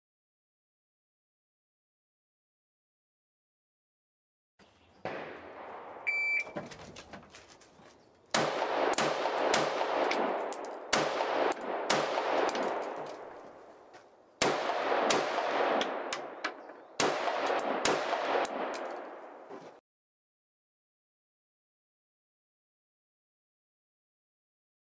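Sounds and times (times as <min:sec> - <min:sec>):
rifle shots echoing: 0:05.0 - 0:06.6, 0:08.3 - 0:13.5, 0:14.4 - 0:19.5.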